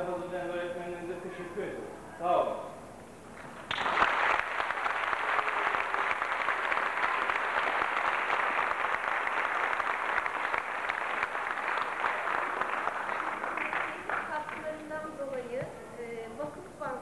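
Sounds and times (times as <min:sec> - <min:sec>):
crowd applauding: 0:03.4 - 0:14.9.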